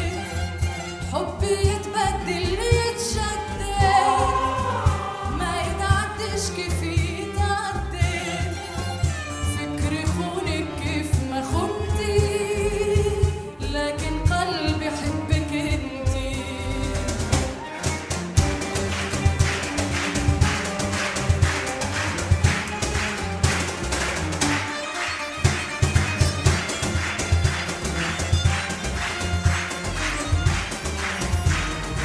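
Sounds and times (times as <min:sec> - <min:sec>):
cello: 0:00.0 - 0:32.0
woman singing: 0:01.1 - 0:08.6, 0:09.5 - 0:17.0
low beat: 0:03.6 - 0:07.2.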